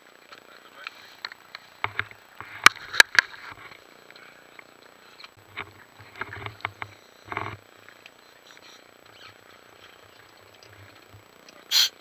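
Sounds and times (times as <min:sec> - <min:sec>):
knocks and clatter of gear: 0:05.4 - 0:07.6.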